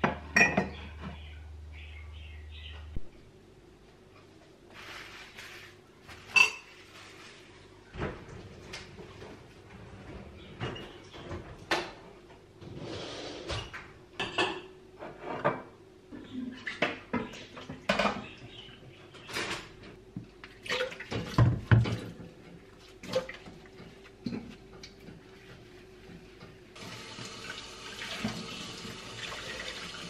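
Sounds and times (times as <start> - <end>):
dishes clinking and knocking: 0.0 - 1.2, 6.2 - 6.8, 14.2 - 15.8, 16.7 - 18.4, 21.1 - 22.6.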